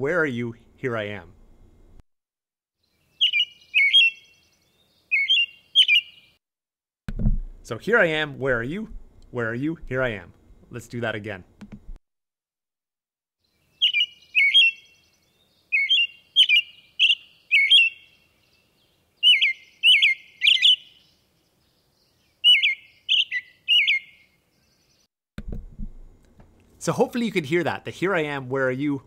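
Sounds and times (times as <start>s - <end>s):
robin singing whistled phrases: 3.1s - 6.4s, 13.8s - 25.0s.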